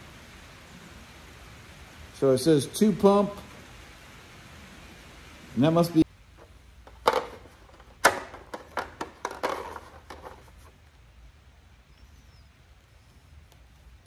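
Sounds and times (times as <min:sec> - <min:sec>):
sharp clicks and rustles: 0:06.4 - 0:11.0.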